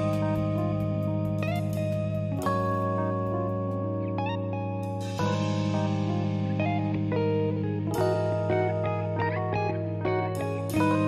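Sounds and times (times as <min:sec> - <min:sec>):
plucked guitar notes: 0:00.0 - 0:11.0
steady low bass tone: 0:00.0 - 0:11.0.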